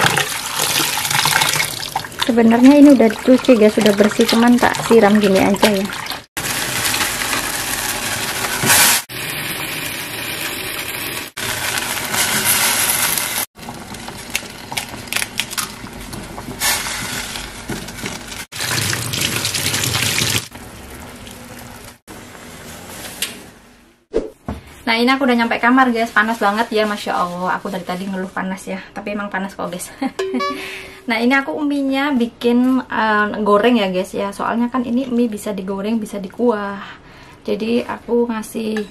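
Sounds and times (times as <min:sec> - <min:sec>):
water gushing from tap: 0:00.0 - 0:08.5, 0:18.6 - 0:20.6.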